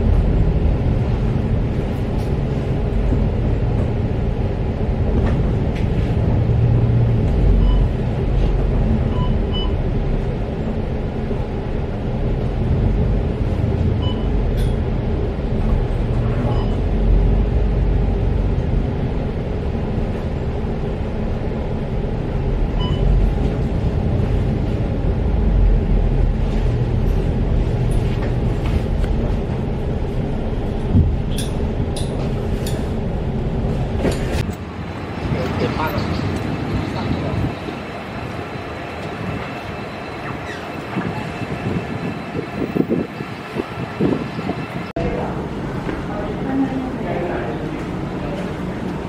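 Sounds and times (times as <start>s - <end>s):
bus engine and road rumble: 0.0s - 49.0s
short beeps: 7.6s - 8.0s, 9.1s - 9.8s, 14.0s - 14.4s, 16.4s - 16.9s, 22.8s - 23.1s.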